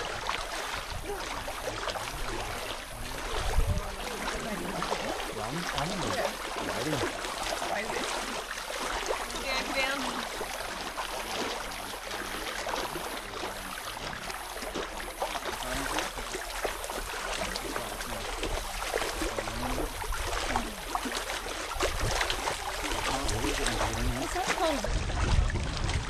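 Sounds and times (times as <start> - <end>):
feet wading and splashing: 0.0 - 26.0
running water: 0.0 - 26.0.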